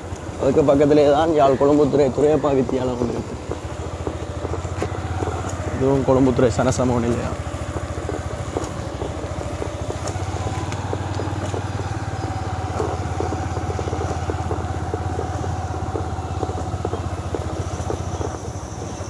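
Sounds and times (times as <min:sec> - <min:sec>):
motorcycle engine running steadily: 0:00.0 - 0:19.0.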